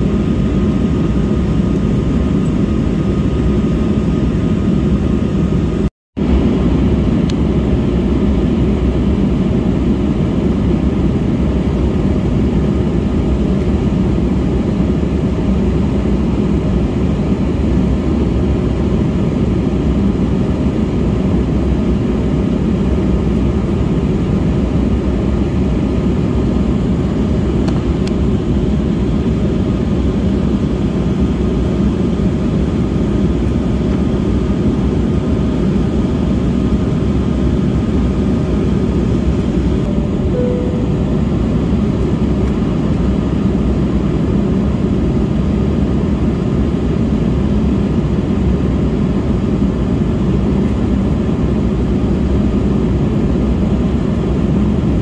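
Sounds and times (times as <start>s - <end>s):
jet engine cabin rumble: 0.0s - 55.0s
faint steady whine: 19.7s - 55.0s.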